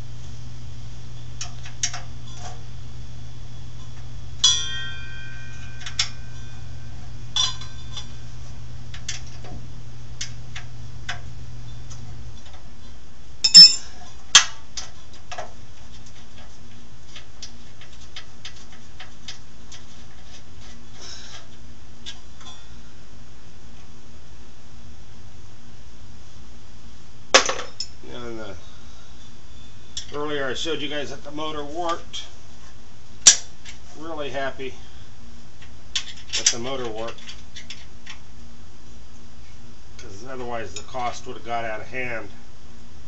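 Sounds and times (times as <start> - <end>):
wrench clinking against steel: 13.4 - 13.9.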